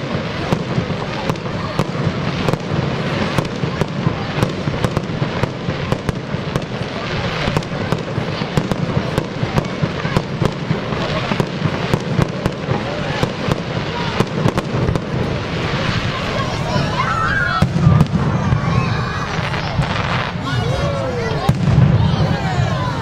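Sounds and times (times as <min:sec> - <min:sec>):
fireworks bangs and crackles: 0:00.0 - 0:23.0.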